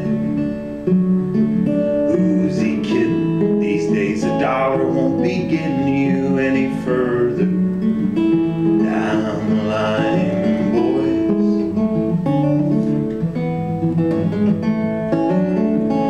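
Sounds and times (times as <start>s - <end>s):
acoustic guitar strummed and picked: 0.0s - 16.0s.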